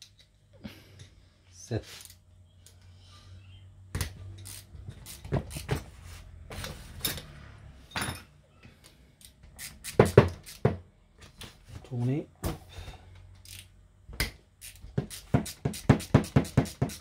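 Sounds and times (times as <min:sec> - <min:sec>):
metal tools clinking and knocking: 0:07.9 - 0:08.4.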